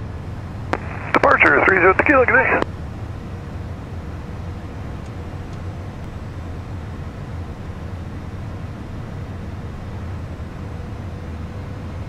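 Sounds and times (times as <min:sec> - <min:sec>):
low jet engine rumble: 0:00.0 - 0:12.0
faint steady hum: 0:00.7 - 0:02.7.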